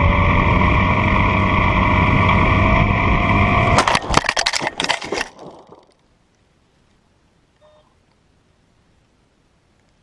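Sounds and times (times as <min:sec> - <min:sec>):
plane crashing into ground: 0:00.0 - 0:05.8.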